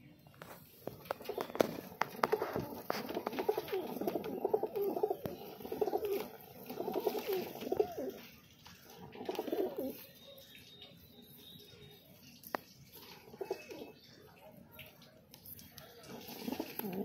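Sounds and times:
pigeons cooing: 0:00.9 - 0:10.4, 0:12.9 - 0:14.3, 0:15.9 - 0:17.0.

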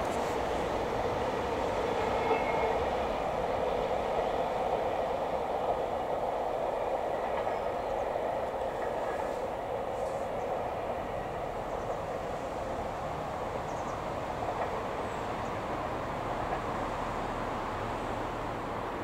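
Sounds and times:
steam train rumbling: 0:00.0 - 0:19.0.

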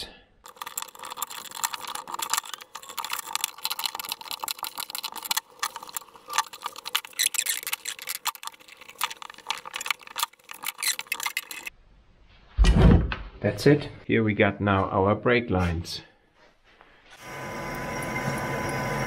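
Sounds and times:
metal tools scraping and clicking: 0:00.5 - 0:11.7.

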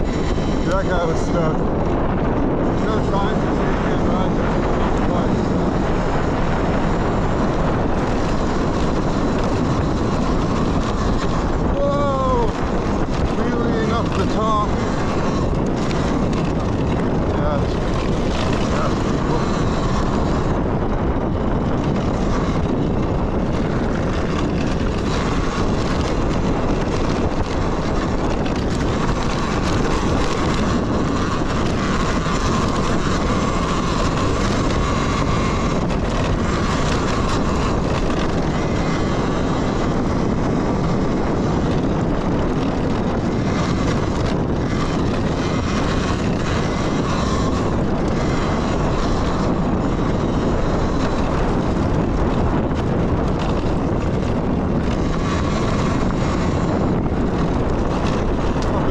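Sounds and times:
faint electric motor whine: 0:00.0 - 0:58.9
wind and tyre noise: 0:00.0 - 0:58.9.

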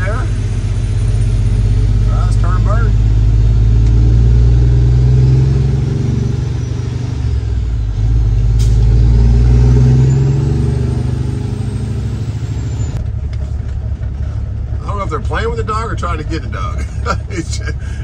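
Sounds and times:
truck diesel engine accelerating: 0:00.0 - 0:18.0.

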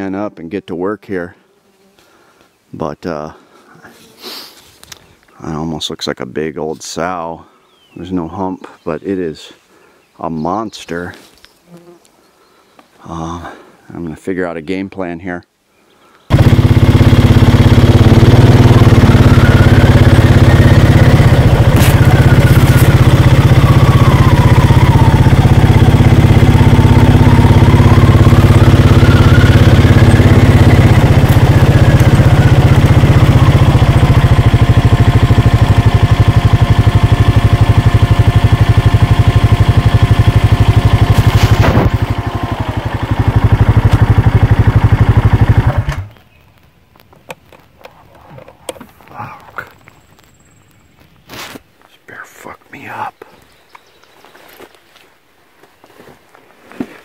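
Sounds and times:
atv engine running: 0:16.3 - 0:51.4.

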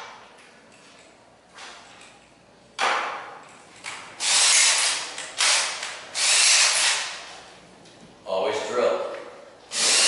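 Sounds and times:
drill chuck ratcheting: 0:04.2 - 0:07.1, 0:09.7 - 0:10.0.

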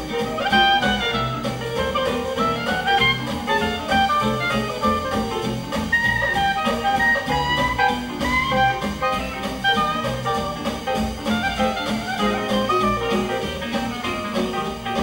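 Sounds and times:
clarinet melody: 0:00.0 - 0:15.0
jazz band playing swing: 0:00.0 - 0:15.0.

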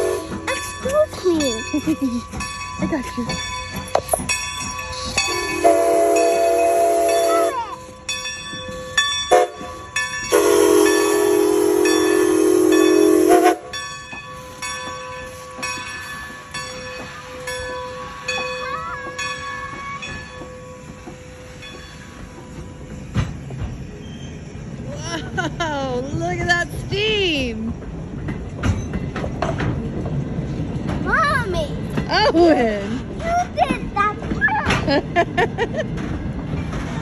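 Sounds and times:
steam locomotive chime whistle: 0:00.0 - 0:00.6, 0:04.8 - 0:08.2, 0:08.9 - 0:15.9
train rumbling past: 0:00.0 - 0:37.0
crossing signal bell ringing: 0:00.4 - 0:24.9.

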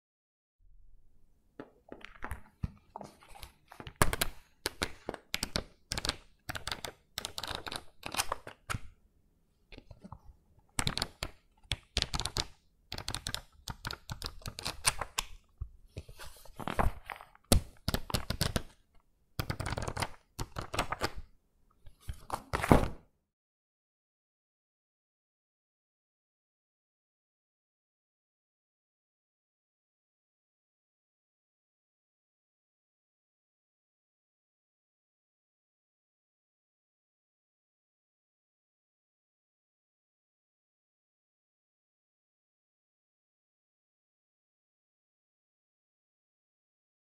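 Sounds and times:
notebook pages flipping: 0:01.6 - 0:08.9, 0:09.8 - 0:18.8, 0:19.4 - 0:21.3, 0:21.9 - 0:23.0.

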